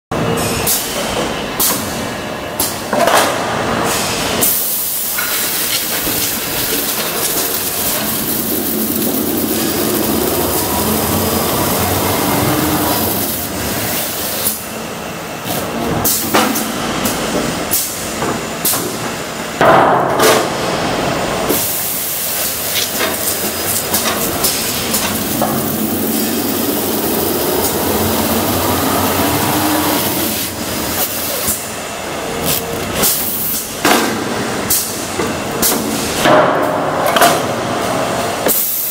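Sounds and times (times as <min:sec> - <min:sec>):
machine whirring: 0:03.7 - 0:19.6, 0:20.2 - 0:36.2
film hissing over rollers: 0:05.0 - 0:14.4, 0:21.6 - 0:31.5
rising hum: 0:06.4 - 0:13.9, 0:23.4 - 0:31.0.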